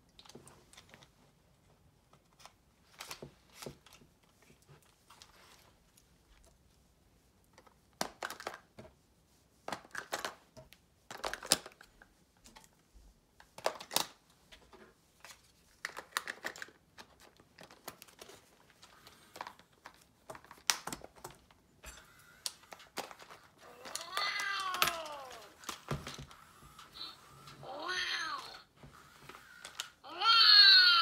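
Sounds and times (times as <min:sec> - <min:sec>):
plastic toy handling clicks: 0:11.1 - 0:11.9, 0:13.5 - 0:14.2, 0:15.8 - 0:26.9, 0:28.4 - 0:30.0.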